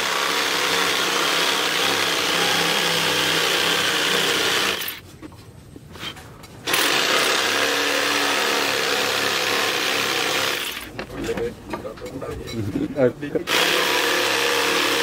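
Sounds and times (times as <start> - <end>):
jigsaw cutting wood: 0.0 - 5.0, 6.7 - 10.9, 13.5 - 15.0.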